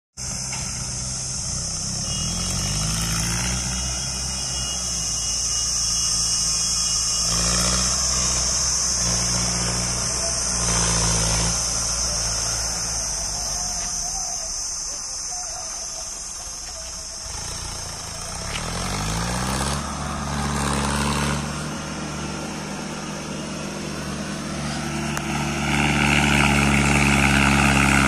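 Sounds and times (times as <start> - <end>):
steady high hiss: 0.2 - 19.3
tractor diesel engine labouring: 0.2 - 28.0.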